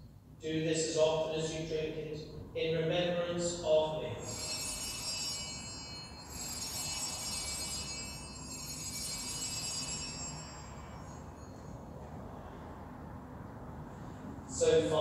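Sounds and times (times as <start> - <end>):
small altar bells ringing: 4.1 - 12.7.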